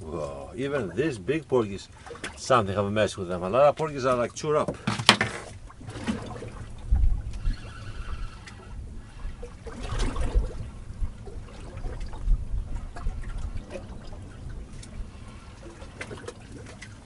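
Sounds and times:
water lapping against boat hull: 0.0s - 17.0s.

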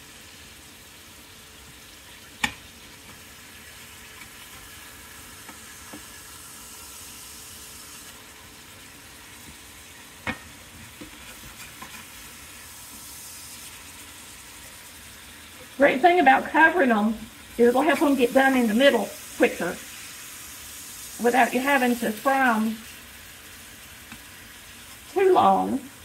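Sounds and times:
patties sizzling in oil: 0.0s - 26.0s.

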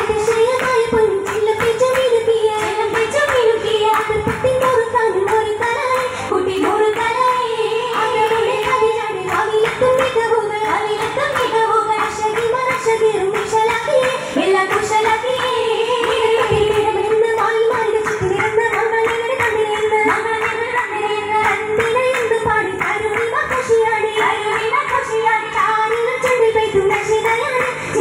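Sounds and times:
rhythmic group hand clapping: 0.0s - 28.0s
group singing a melody: 6.1s - 12.1s, 12.7s - 17.4s.

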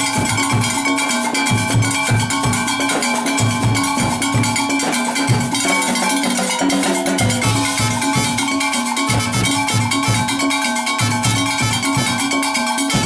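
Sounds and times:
bass drum beating: 7.4s - 8.4s, 9.1s - 10.4s, 11.0s - 12.2s.

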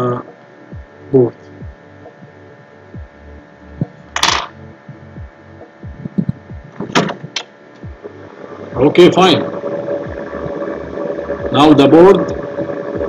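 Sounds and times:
electrical mains hum: 0.0s - 13.0s
soft low thumps: 0.7s - 1.0s, 1.6s - 2.4s, 3.0s - 4.0s, 4.9s - 8.2s.

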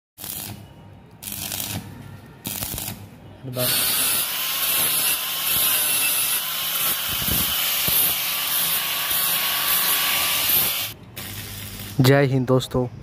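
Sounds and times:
angle grinder grinding steel: 3.6s - 11.0s.

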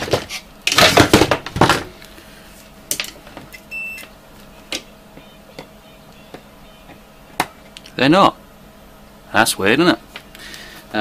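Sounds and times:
short high multimeter beep: 3.7s - 4.1s.

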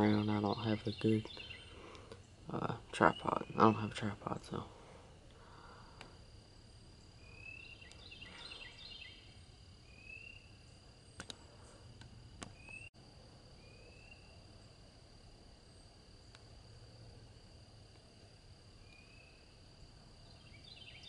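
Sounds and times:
high thin insect whine: 0.0s - 21.0s
rising bird calls: 7.2s - 10.6s
soft sharp clicks: 11.2s - 11.4s.

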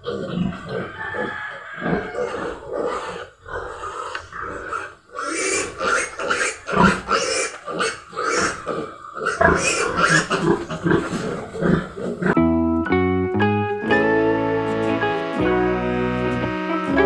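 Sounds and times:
piglet squealing: 0.2s - 12.2s.

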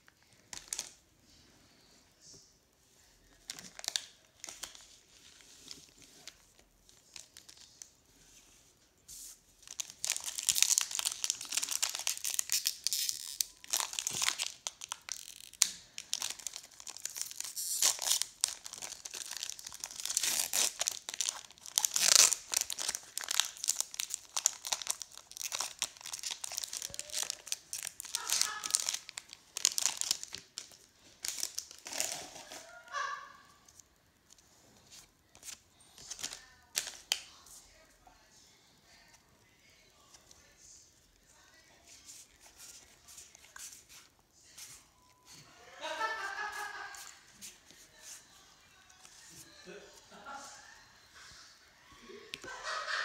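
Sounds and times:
foil wrapper crinkling and tearing: 0.5s - 1.0s, 3.5s - 5.0s, 9.6s - 33.0s.

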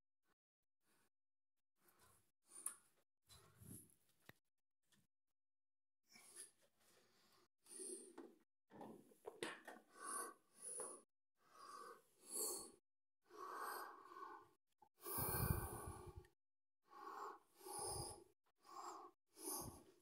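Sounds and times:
breathing close to microphone: 9.8s - 20.0s.

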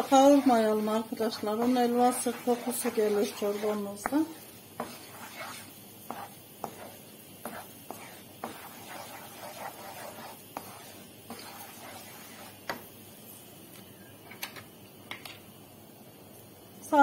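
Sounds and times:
wooden spoon scraping and tapping pan: 0.0s - 12.9s
flour and butter sizzling in pan: 0.0s - 13.9s.

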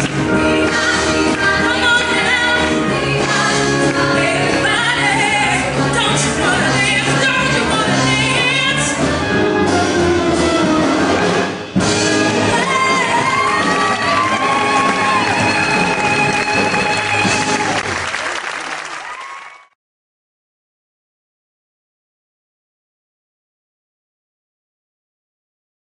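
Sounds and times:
women singing in harmony: 0.0s - 9.1s, 12.2s - 17.7s.

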